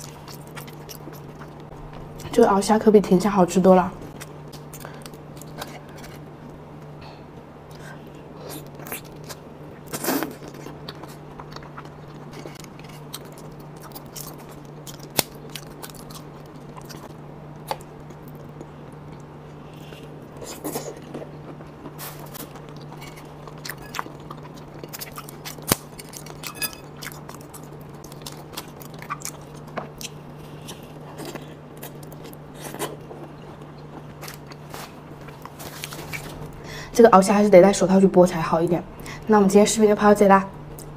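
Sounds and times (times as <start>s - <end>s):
chewing and biting: 0.0s - 1.7s, 7.7s - 36.4s
steady low hum: 0.0s - 40.9s.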